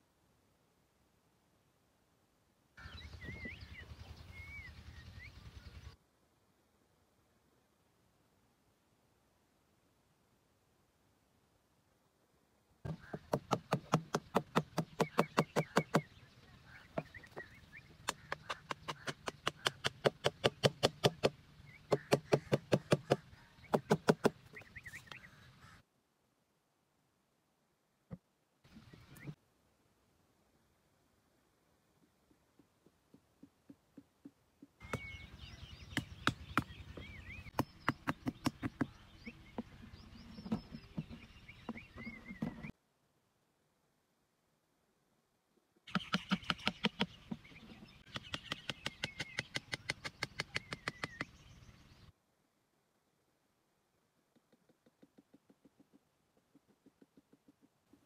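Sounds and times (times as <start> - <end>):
faint bird chirps: 2.8 - 6.0, 14.2 - 19.9, 34.8 - 42.8, 45.8 - 52.1
hammer knocking wooden stake: 12.8 - 16.1, 17.0 - 24.6, 32.2 - 39.8, 45.9 - 47.4.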